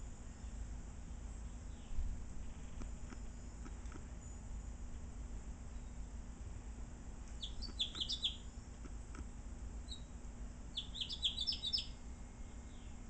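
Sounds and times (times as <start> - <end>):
finch singing: 7.3 - 9.1, 9.8 - 13.0.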